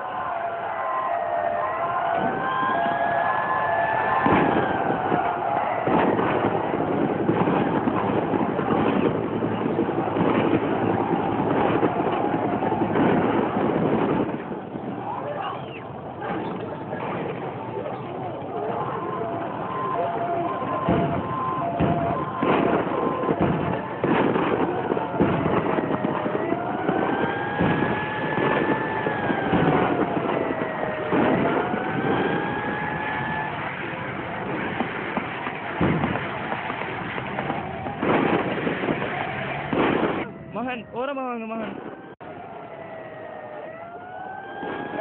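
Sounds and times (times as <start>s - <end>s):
tracked vehicle engine rumbling: 4.3s - 40.6s.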